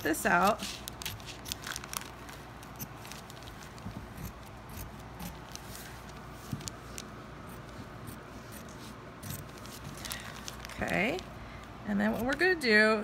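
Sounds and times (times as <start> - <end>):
scissors snipping fabric: 0.0 - 1.9, 2.6 - 5.9, 7.4 - 11.2, 12.0 - 12.6.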